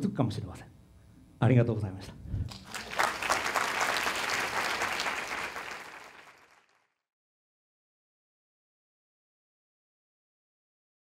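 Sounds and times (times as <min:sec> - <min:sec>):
audience applauding: 0:02.5 - 0:07.0.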